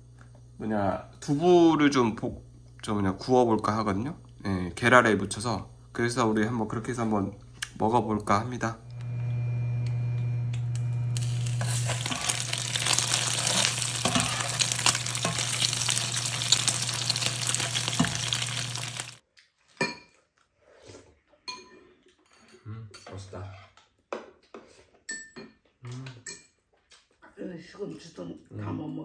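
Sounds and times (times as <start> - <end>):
low hum: 8.8 - 19.2
tofu sizzling in oil: 11.1 - 19.2
spoons clinking on bowls: 11.2 - 19.0
metal spatula scraping pan: 11.6 - 18.4.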